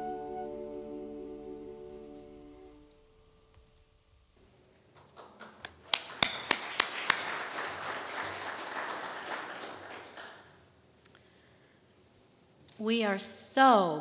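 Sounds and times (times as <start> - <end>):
congregation applauding: 4.9 - 10.7.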